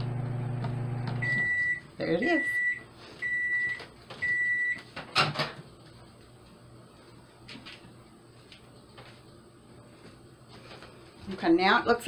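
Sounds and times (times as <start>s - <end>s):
microwave beeps: 0.0s - 4.9s.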